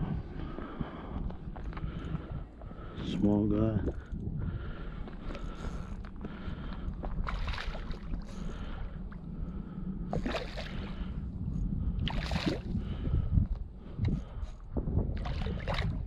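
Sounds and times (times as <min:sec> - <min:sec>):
wind buffeting microphone: 0:00.0 - 0:16.0
lapping water: 0:15.2 - 0:16.0.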